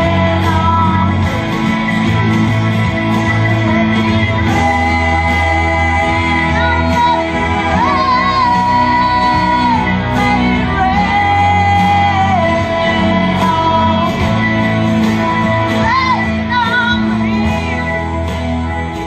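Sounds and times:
instrumental accompaniment: 0:00.0 - 0:19.0
steady bass line: 0:00.0 - 0:19.0
vocal group singing: 0:00.0 - 0:19.0
woman singing long notes: 0:04.4 - 0:17.8.

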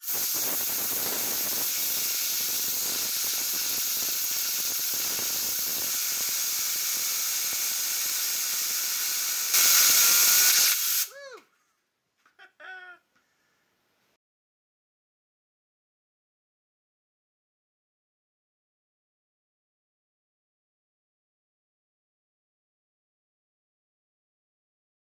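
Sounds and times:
compressed air hissing: 0:00.0 - 0:11.3.

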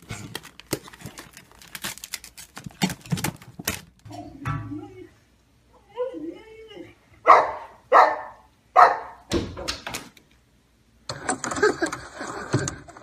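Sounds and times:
dog barking: 0:07.2 - 0:09.3.

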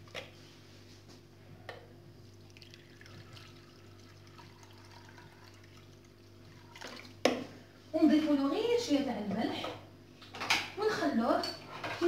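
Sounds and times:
water trickling into a bowl: 0:02.4 - 0:07.2.

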